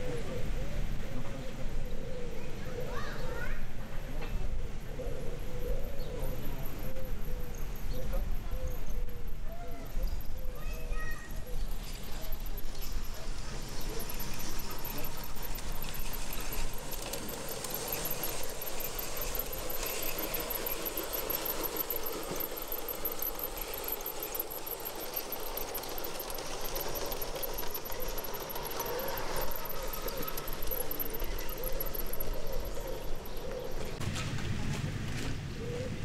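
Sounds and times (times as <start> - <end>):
model train motors and wheels rattling: 0.0 - 36.0
fast faint high ticking: 11.6 - 34.0.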